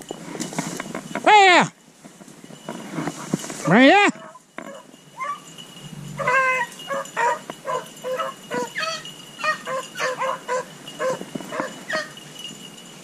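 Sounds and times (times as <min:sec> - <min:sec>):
dogs barking and baying: 0:03.5 - 0:12.5.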